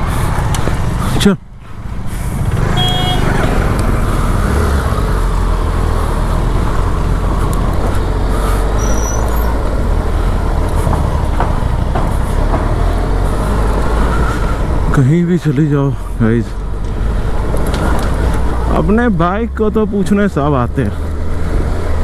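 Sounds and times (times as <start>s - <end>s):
motorcycle engine droning: 2.4s - 10.0s.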